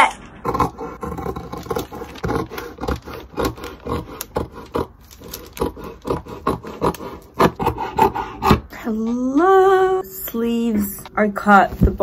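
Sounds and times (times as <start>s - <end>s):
scissors cutting fabric: 0.4s - 8.7s.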